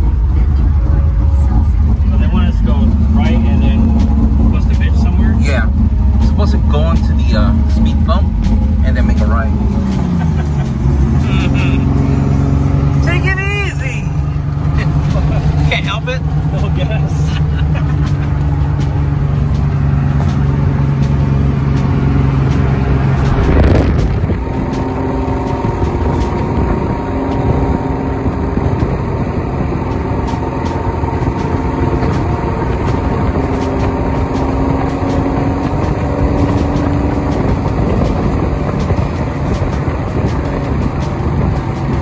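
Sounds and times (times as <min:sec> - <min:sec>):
car engine humming: 0:00.0 - 0:42.0
wind rushing over microphone: 0:19.3 - 0:42.0.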